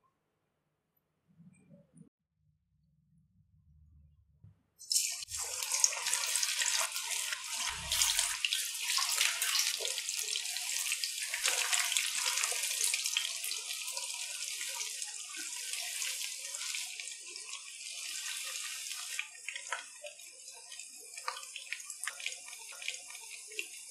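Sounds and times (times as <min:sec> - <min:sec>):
chicken deep-frying in oil: 0:04.8 - 0:23.9.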